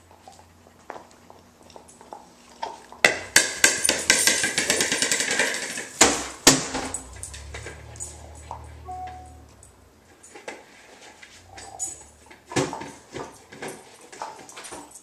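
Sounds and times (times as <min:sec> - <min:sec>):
dog claws scrabbling on tile: 0:00.2 - 0:08.0
plastic ball bouncing on tile floor: 0:03.0 - 0:07.0.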